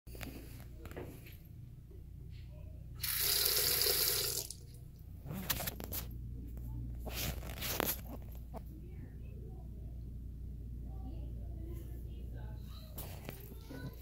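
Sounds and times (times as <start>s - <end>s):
water splashing into sink basin: 3.0s - 4.7s.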